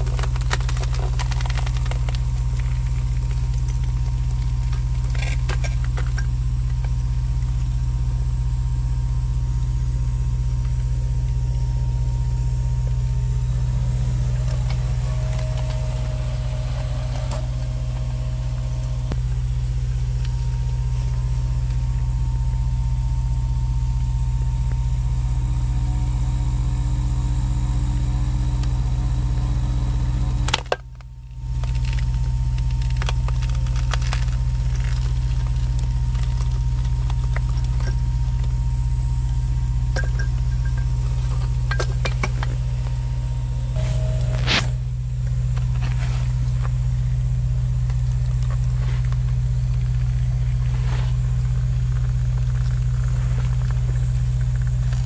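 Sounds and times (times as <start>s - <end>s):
engine low drone: 0.0s - 55.0s.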